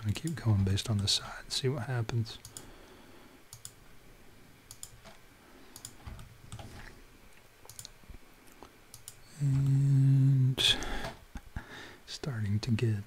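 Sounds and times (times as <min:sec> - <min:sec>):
mouse and keyboard clicks: 0:03.5 - 0:03.8, 0:04.7 - 0:06.8, 0:07.7 - 0:08.0, 0:08.9 - 0:09.7.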